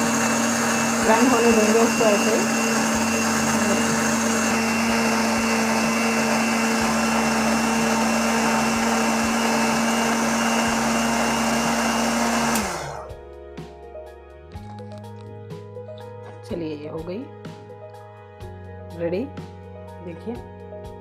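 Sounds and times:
electric mixer grinder whining: 0:00.0 - 0:13.1.

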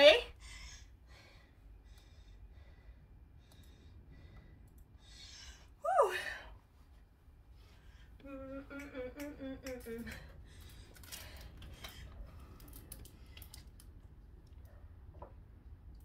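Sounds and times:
woman humming: 0:05.8 - 0:06.4, 0:08.2 - 0:10.3
faint clicks and rustles: 0:09.2 - 0:16.0.

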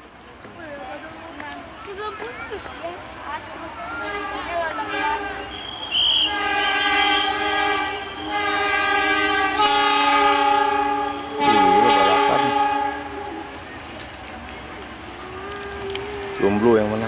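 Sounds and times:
locomotive air horn blasts: 0:03.9 - 0:13.5.

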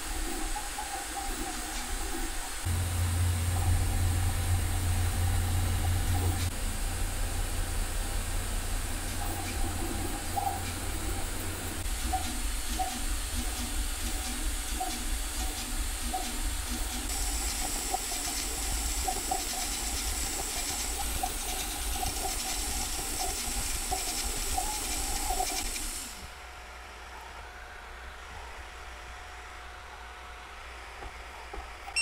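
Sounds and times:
cooling fans hissing: 0:00.0 - 0:26.8
stepper motors chirping: 0:00.8 - 0:06.5, 0:08.0 - 0:26.2.

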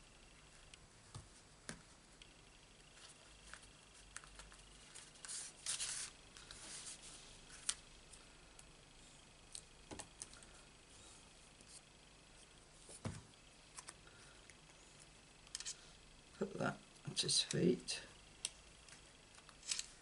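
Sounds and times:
card rustling: 0:02.8 - 0:07.8.

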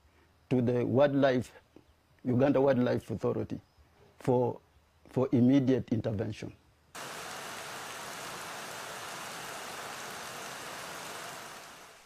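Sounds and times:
steady rushing noise: 0:07.0 - 0:12.0.

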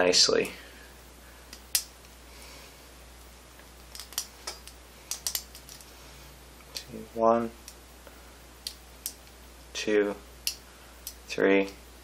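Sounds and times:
lock pick clicking and scraping: 0:03.9 - 0:05.8.

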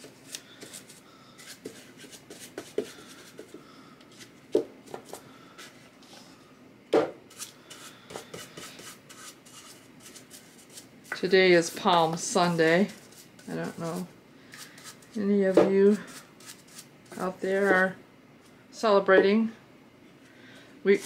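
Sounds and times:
paintbrush scratching on wood: 0:07.3 - 0:17.9.

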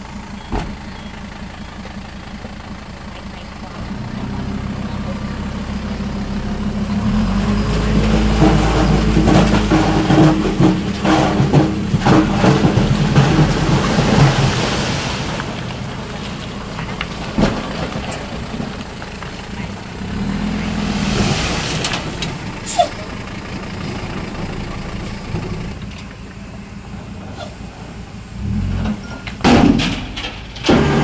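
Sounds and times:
heavy diesel engine running: 0:00.0 - 0:31.0
loose stone rumbling and clattering: 0:07.4 - 0:20.0.

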